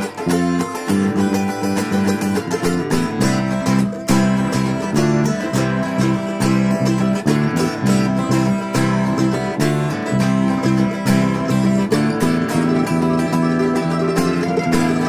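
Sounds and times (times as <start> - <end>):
upbeat acoustic guitar music: 0.0 - 15.0.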